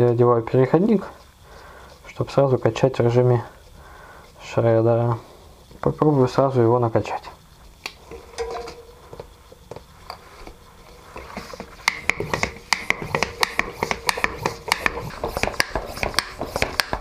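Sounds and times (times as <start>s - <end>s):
bicycle pump strokes rasping: 0.0s - 17.0s
handling sounds: 8.0s - 11.8s.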